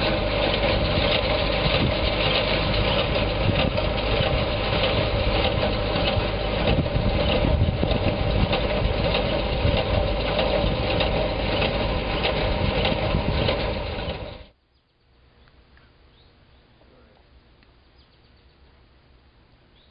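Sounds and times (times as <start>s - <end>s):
engine running: 0.0s - 14.6s
faint bird chirps: 14.6s - 19.9s.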